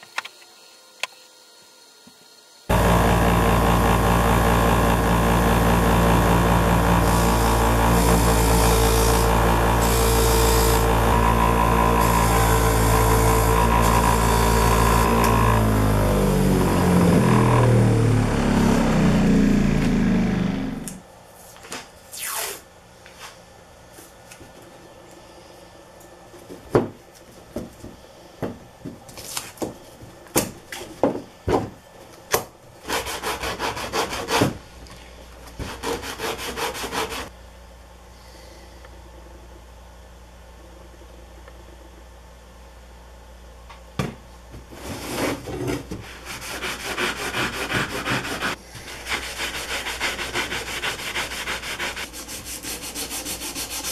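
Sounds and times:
electric motor running and spinning down: 1.8 - 21.0.

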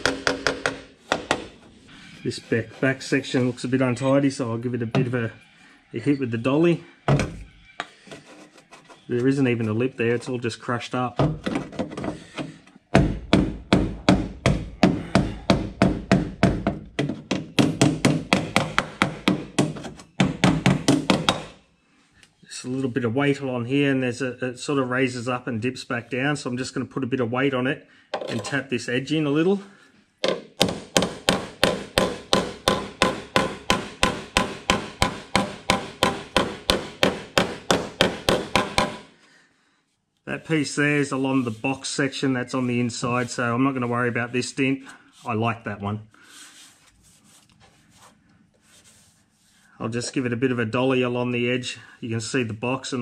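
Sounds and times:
hammer tapping sheet metal: 0.0 - 1.6, 13.0 - 21.6, 30.2 - 39.1.

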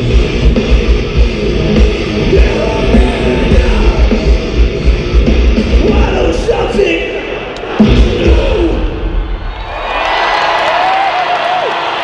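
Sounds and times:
heavy drum beat: 0.0 - 9.2
distorted guitars: 0.0 - 9.5.

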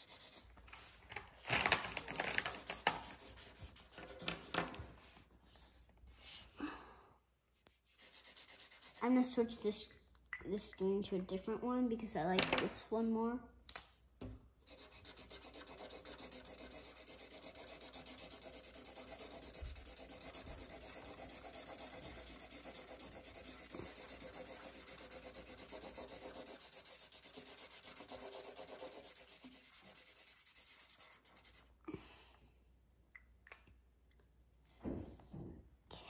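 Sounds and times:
marker scribbling on paper: 0.0 - 4.7, 7.6 - 9.4, 14.6 - 31.8.

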